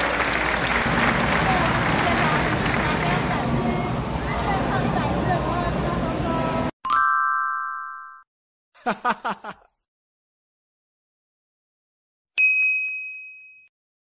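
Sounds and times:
bell-like chime: 6.9 - 8.3, 12.4 - 13.7
bright ding: 12.4 - 13.7.

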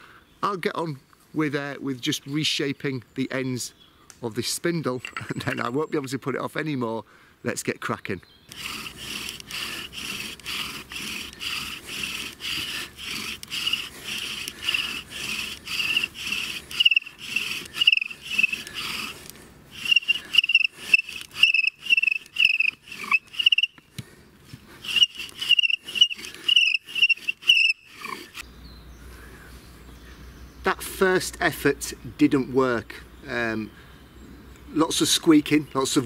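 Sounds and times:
wood squeaking and scraping on wood: 4.9 - 6.2, 8.5 - 23.9, 24.5 - 28.4.

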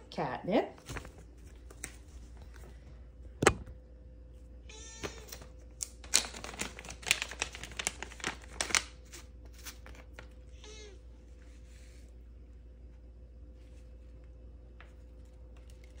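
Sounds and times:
cat meowing: 4.7 - 5.4, 10.5 - 11.0
plastic bag crinkling: 5.4 - 10.4.

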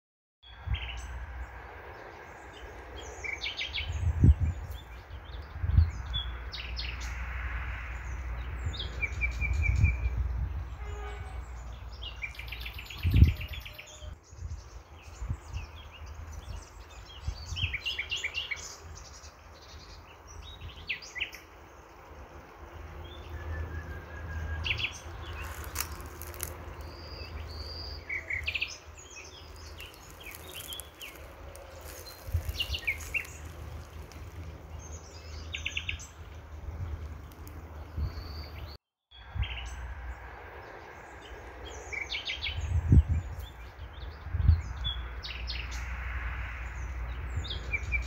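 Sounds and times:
small birds chirping: 24.7 - 39.8.

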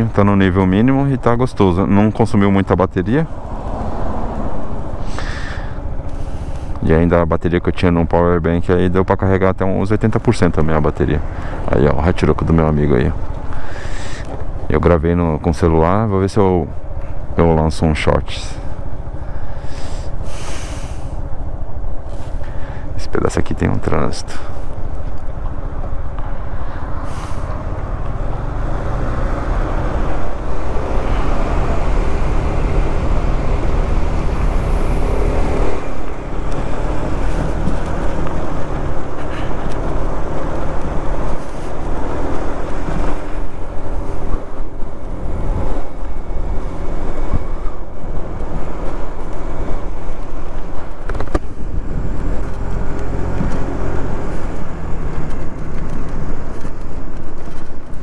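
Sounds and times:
wind on microphone: 28.8 - 58.0.

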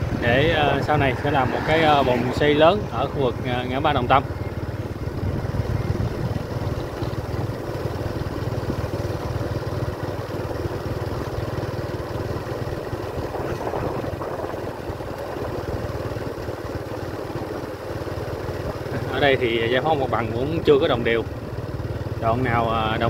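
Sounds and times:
motorbike engine running: 0.0 - 23.0.

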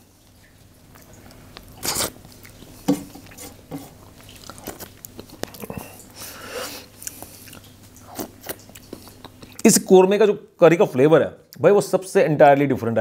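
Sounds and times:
man biting and chewing food: 0.4 - 9.7.

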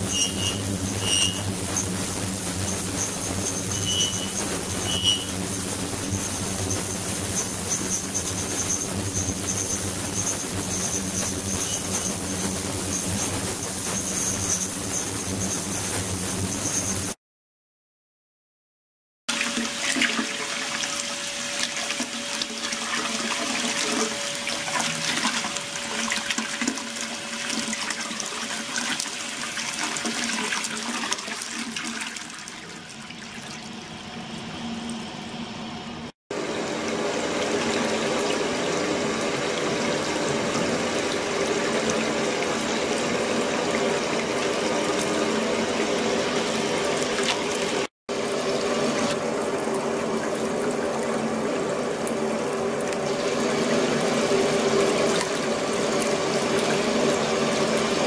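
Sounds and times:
steady hum: 0.0 - 17.2
water churning in a tank: 0.0 - 17.2, 19.3 - 58.0.

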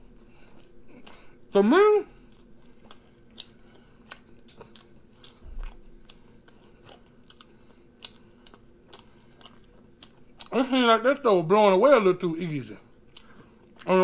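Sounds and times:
wet chewing mouth clicks: 2.3 - 10.6.

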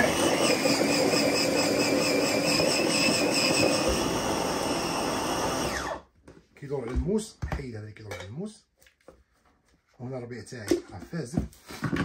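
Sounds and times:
electric food chopper running: 0.0 - 6.1.

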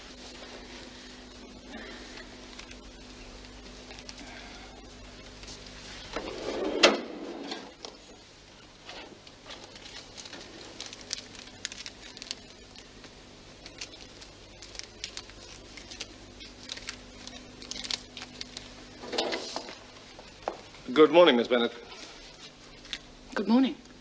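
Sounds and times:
paper crinkle: 0.0 - 6.6, 7.5 - 20.9, 21.8 - 23.2
faint steady hum: 0.0 - 24.0
paper rustling: 8.8 - 20.6.

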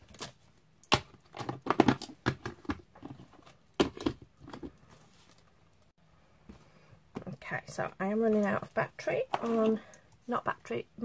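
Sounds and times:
plastic cases clacking: 0.1 - 4.8.

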